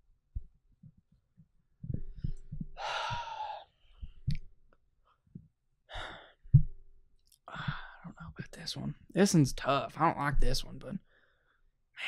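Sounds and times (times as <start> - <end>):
man sighing: 2.8 - 3.7
short breath: 2.8 - 4.1, 5.9 - 6.4.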